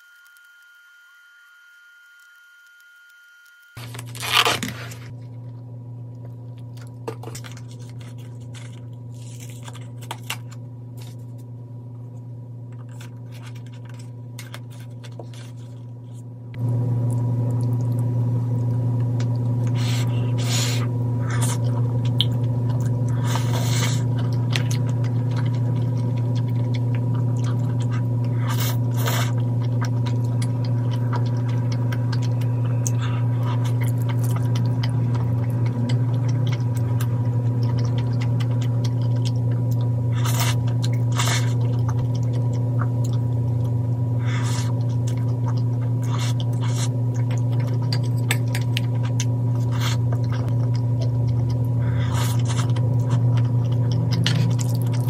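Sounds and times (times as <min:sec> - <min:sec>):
low hum: 0:00.0 - 0:55.0
chewing: 0:02.2 - 0:11.5, 0:12.7 - 0:16.2, 0:17.0 - 0:55.0.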